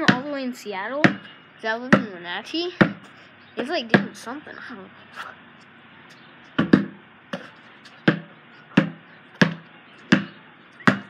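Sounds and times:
basketball bouncing: 0.0 - 4.3, 6.5 - 11.0.

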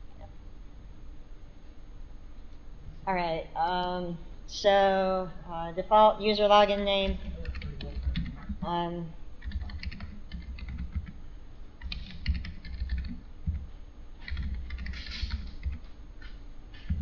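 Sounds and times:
typing on computer keyboard: 7.3 - 8.5, 9.4 - 11.2, 11.8 - 13.6, 14.2 - 15.9.

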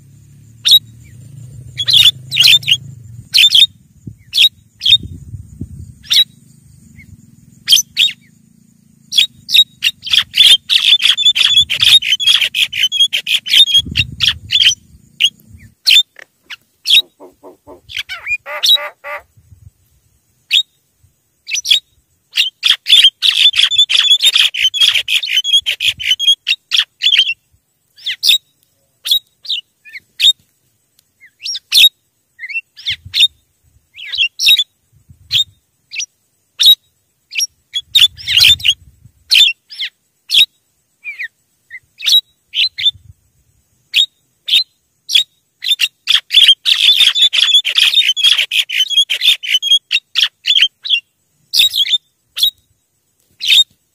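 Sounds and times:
birds harsh chattering: 0.7 - 5.1, 6.0 - 19.3.

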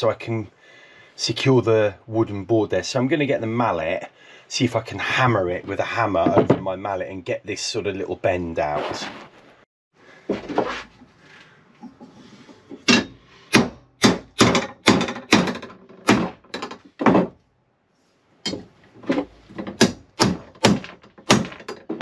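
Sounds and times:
hammer striking metal strap: 12.8 - 17.4, 18.4 - 22.0.

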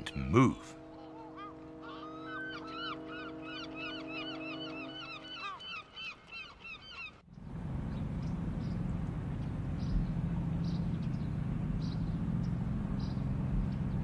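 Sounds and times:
car engine driving: 7.4 - 14.0
birds calling rapidly: 7.8 - 14.0.

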